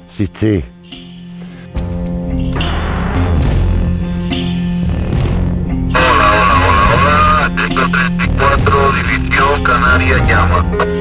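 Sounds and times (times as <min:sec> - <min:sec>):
sustained notes over low bass: 0:02.5 - 0:11.0.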